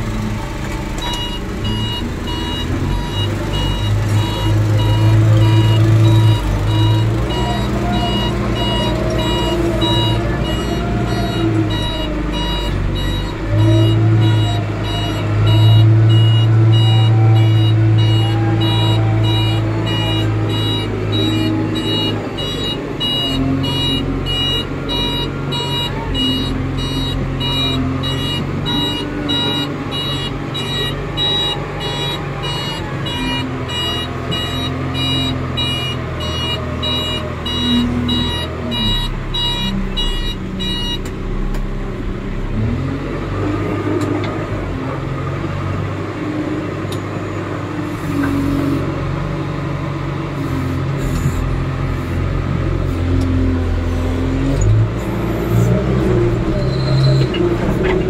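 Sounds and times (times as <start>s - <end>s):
reversing alarm beeping: 0.0s - 41.5s, 53.8s - 58.0s
diesel engine working: 0.0s - 58.0s.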